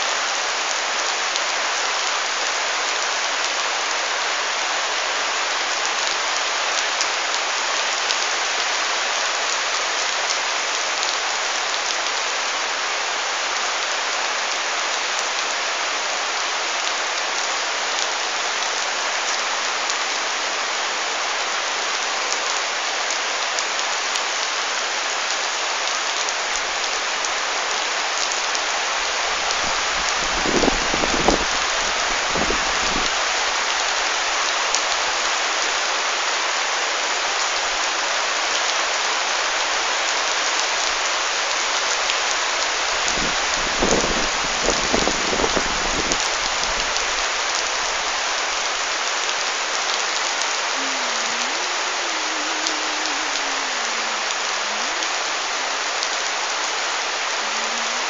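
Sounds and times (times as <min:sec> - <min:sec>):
heavy rain on plants: 0:00.0 - 0:58.0.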